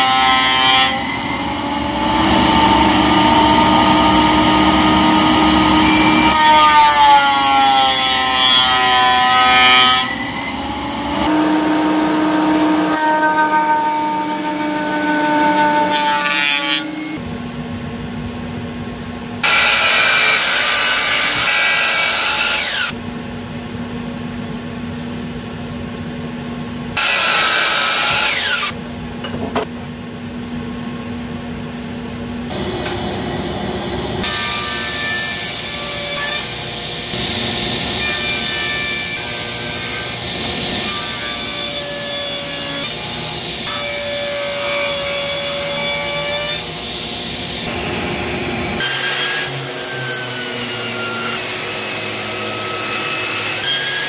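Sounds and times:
miter saw cutting wood: 0.0 - 17.2, 19.4 - 22.9, 27.0 - 28.7, 32.5 - 46.7
drum sander running: 32.5 - 34.6.

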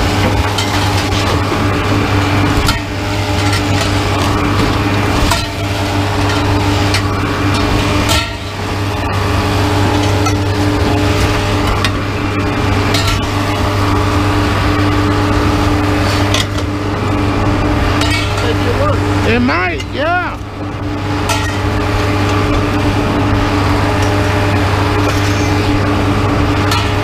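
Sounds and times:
diesel machine droning: 0.0 - 27.0
metal tubing clanking on ground: 2.5 - 8.6, 9.9 - 12.0, 12.9 - 13.7, 18.0 - 18.7, 21.3 - 21.7, 26.6 - 27.0.

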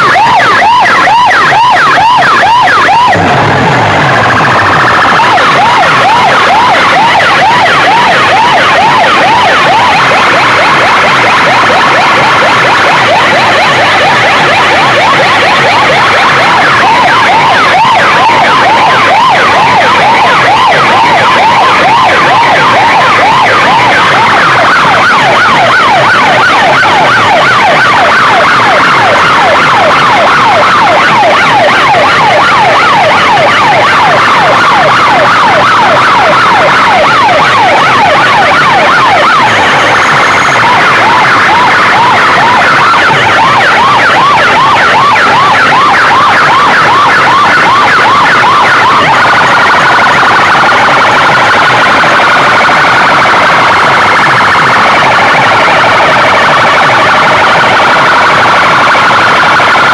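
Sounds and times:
electronic sirens sweeping: 0.0 - 59.9.

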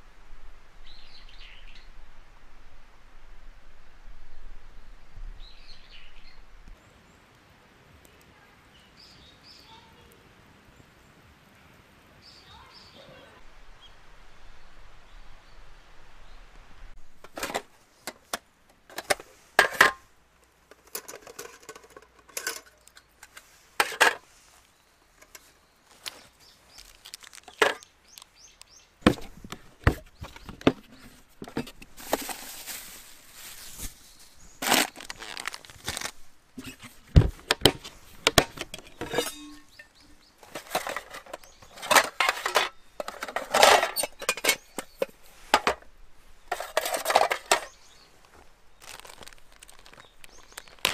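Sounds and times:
camp gear clicks and knocks: 17.1 - 24.3, 25.2 - 32.8, 33.4 - 45.9, 46.5 - 50.9
metal mess tins clinking: 17.2 - 20.0, 20.7 - 24.2, 37.5 - 45.8, 46.5 - 47.7
plastic cooler lid opening: 17.2 - 20.0, 29.1 - 32.6, 34.6 - 39.6, 40.4 - 45.8.

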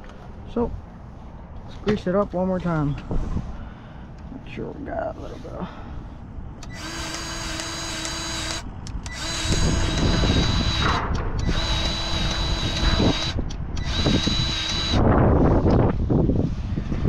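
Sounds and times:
grease gun motor whining: 6.6 - 15.0.

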